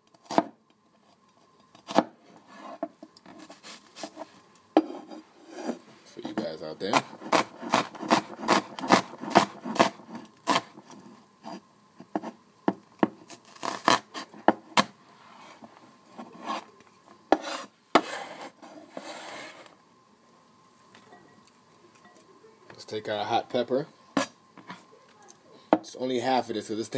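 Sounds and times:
knife scraping on board: 1.0 - 5.8, 6.9 - 12.4, 13.3 - 19.7, 24.2 - 24.8
knife chopping on wooden board: 1.8 - 2.1, 6.9 - 10.7, 17.3 - 18.2.

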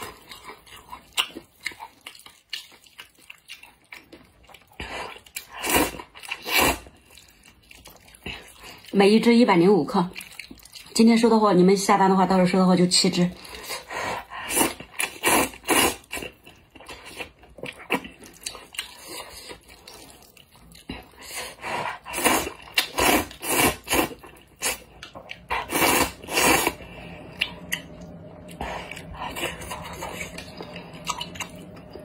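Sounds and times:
chewing: 0.0 - 9.0, 9.9 - 11.0, 13.3 - 32.0
noodles being slurped: 4.7 - 8.9, 13.5 - 32.0.

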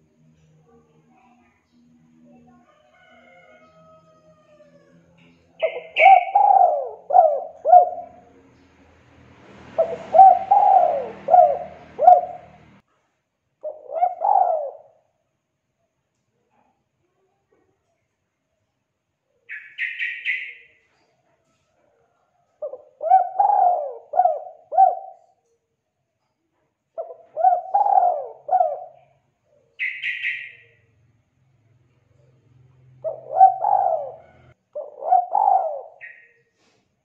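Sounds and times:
dove cooing: 5.6 - 8.5, 9.7 - 12.8, 13.6 - 15.0, 22.6 - 25.4, 27.0 - 29.1, 32.1 - 36.3.

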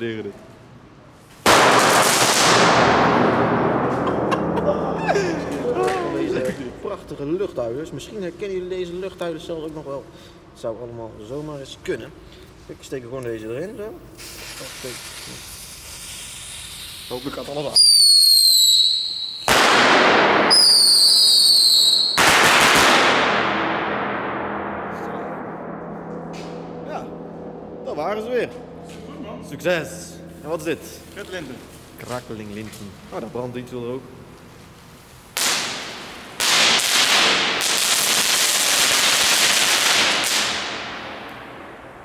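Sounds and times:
firework crackling burst: 1.4 - 3.0, 14.2 - 23.6, 34.5 - 41.1
firework hissing: 14.1 - 19.7, 34.9 - 40.6
falling whistle: 17.7 - 19.5, 20.5 - 22.2.

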